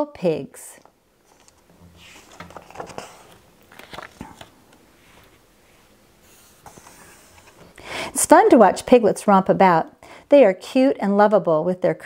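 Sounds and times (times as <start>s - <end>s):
paper page rustling: 1.2s - 7.6s.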